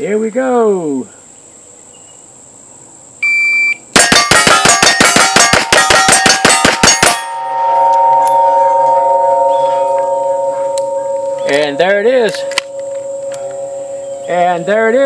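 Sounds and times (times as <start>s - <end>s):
steel plates ringing: 4.0s - 15.0s.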